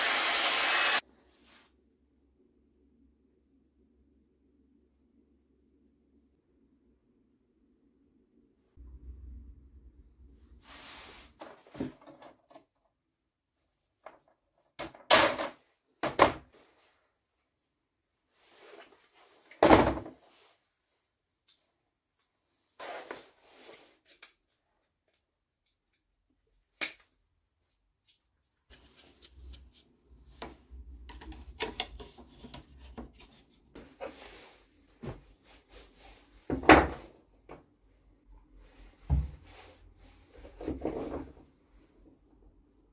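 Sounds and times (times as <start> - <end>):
knocks of wooden and metal parts: 31.0 - 32.2.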